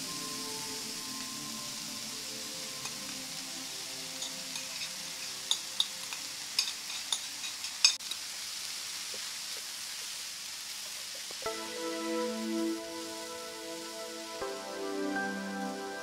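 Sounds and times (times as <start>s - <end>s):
stir-fry sizzling in a pan: 0.0s - 16.0s
spatula scraping a pan: 4.2s - 8.0s.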